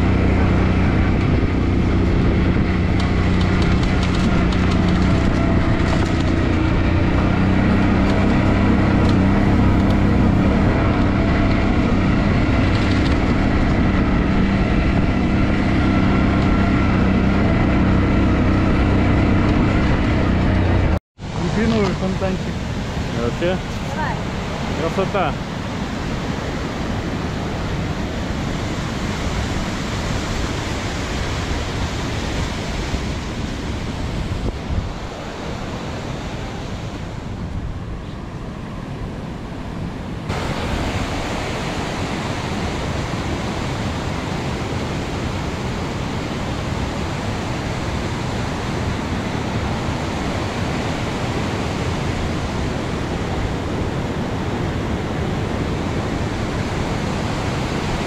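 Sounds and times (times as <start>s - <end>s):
steady rushing noise: 0.0s - 58.0s.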